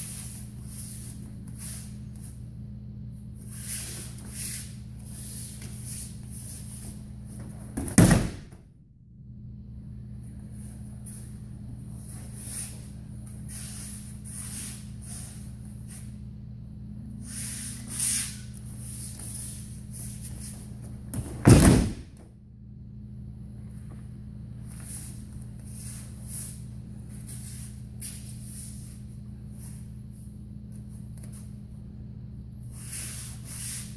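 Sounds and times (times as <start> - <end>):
low hum: 0.0 - 33.4
body landing on mats: 7.4 - 8.6, 20.9 - 22.2
bare feet shuffling on mats: 17.4 - 22.0.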